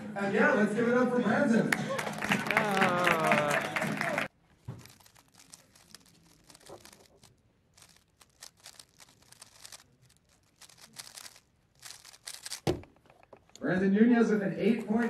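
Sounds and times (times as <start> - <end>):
plastic cube clicking: 4.8 - 13.6
cube thump on mat: 12.5 - 13.1.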